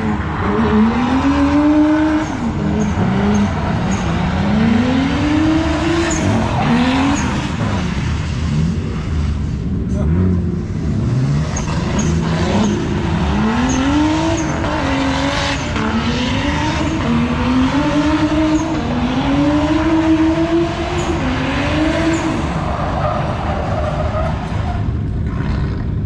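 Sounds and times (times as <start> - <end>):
car engine revving hard: 0.0 - 9.2, 9.9 - 22.6
tyre squeal on tarmac: 6.0 - 7.5.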